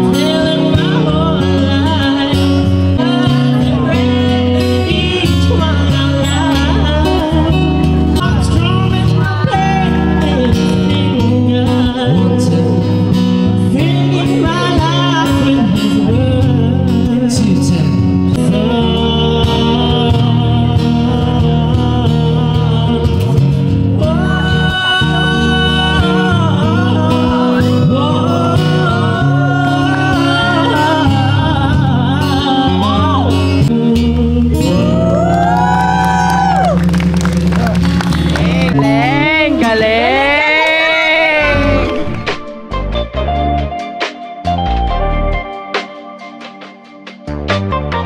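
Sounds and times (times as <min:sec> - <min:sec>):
strummed acoustic guitar: 0:00.0 - 0:35.2
man singing into microphone: 0:00.0 - 0:35.8, 0:38.2 - 0:43.7.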